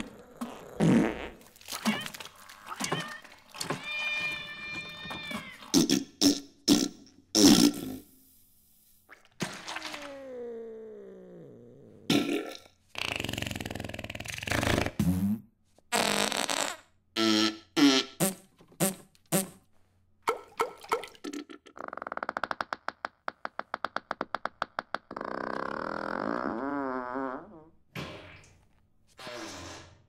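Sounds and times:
comic fart sound effects: 0.0 - 2.1, 5.7 - 8.2, 9.2 - 19.6, 21.3 - 28.6, 29.2 - 30.0.

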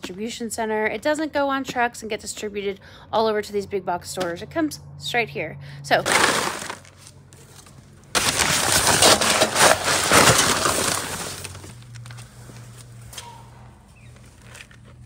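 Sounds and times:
feed pellets rattling and pouring: 6.1 - 6.9.

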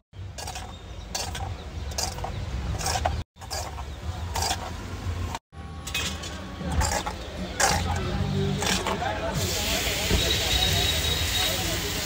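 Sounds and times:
spoon scraping a steel bowl: 0.4 - 4.8, 5.9 - 9.0.

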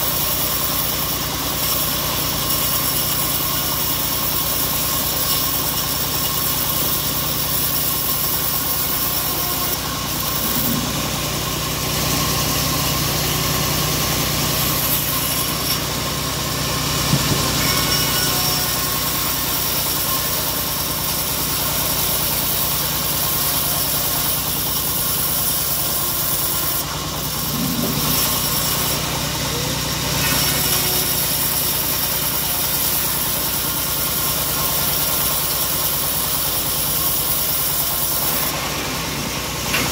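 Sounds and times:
band saw blade cutting wood: 0.0 - 39.9
engine drone: 0.0 - 39.9.

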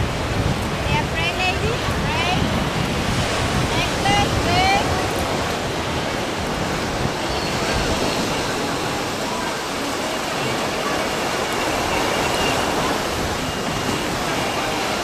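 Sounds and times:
ocean surf on a beach: 0.0 - 15.0
wind buffeting the microphone: 0.0 - 15.0
faint distant voices: 7.1 - 15.0.

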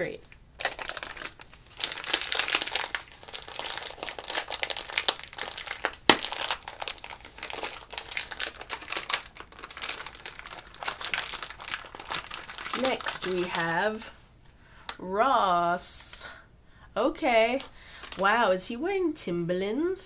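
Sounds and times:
crinkly packaging rustling: 0.0 - 14.2, 17.3 - 18.3.

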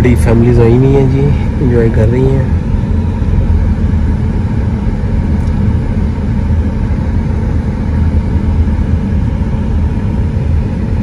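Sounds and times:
car engine and road noise: 0.0 - 11.0.

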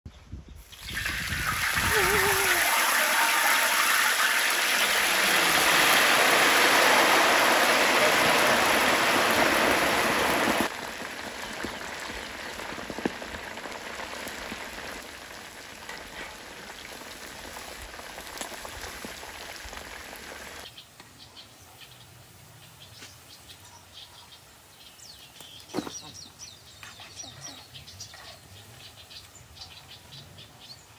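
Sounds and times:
food deep-frying in oil: 0.6 - 20.8.

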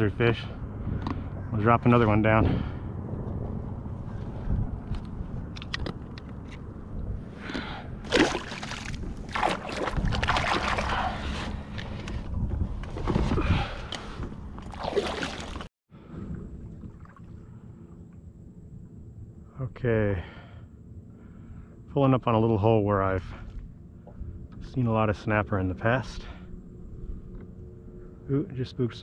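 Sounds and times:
water splashing against kayak hull: 8.0 - 11.5, 14.0 - 15.7
steady hum: 13.9 - 29.0.

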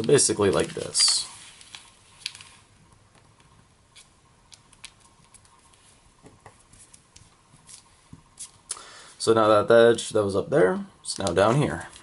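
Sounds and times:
paper crinkling while folded: 0.0 - 2.7.

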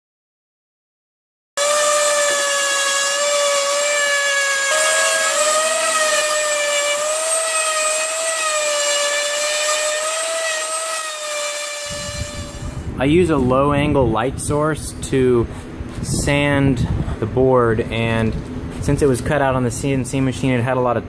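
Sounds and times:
orbital sander whining: 1.6 - 12.9.

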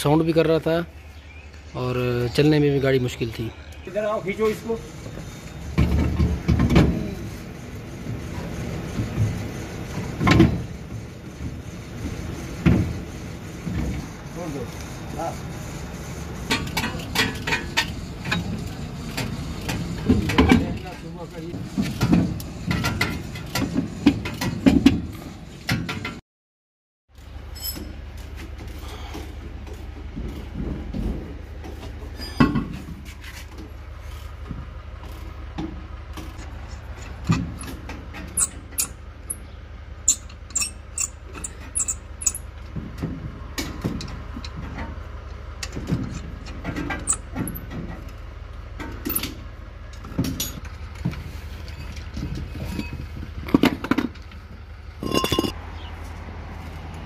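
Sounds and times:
metal tools clinking: 27.5 - 28.0, 40.1 - 42.5, 49.0 - 49.4, 55.0 - 55.6
steady low hum: 50.4 - 56.5.

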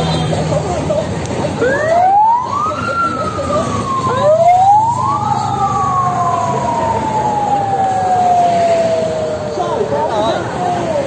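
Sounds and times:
rumble of passing vehicles: 0.0 - 11.0
vehicle siren wailing: 1.6 - 11.0.

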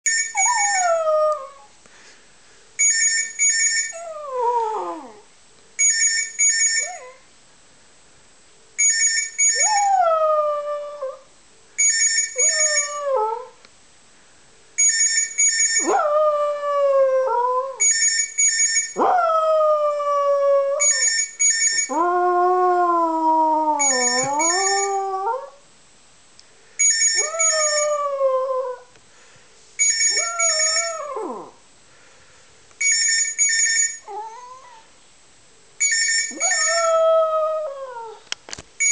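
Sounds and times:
electronic telephone ringing: 2.8 - 3.9, 5.8 - 6.9, 8.8 - 9.7, 11.8 - 12.9, 14.8 - 15.9, 17.8 - 19.0, 20.8 - 21.9, 23.8 - 24.9, 26.8 - 27.8, 29.8 - 31.0, 32.8 - 34.1, 35.8 - 36.8
dog howling: 21.9 - 25.6, 30.2 - 31.6.

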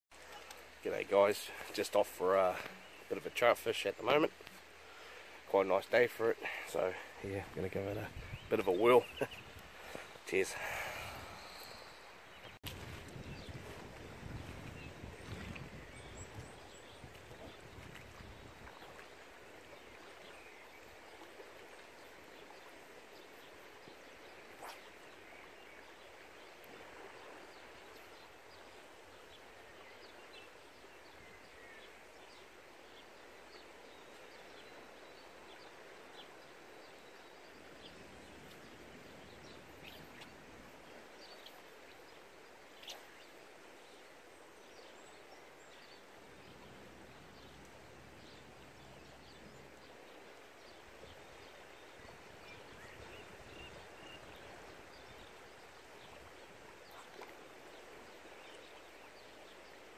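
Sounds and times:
river flowing: 0.1 - 59.9
faint bird chirps: 24.4 - 25.9, 42.7 - 44.0.

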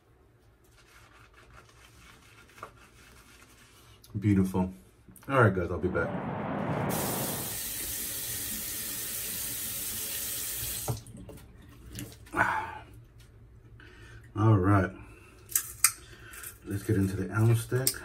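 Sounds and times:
tap running into sink: 10.6 - 11.1.

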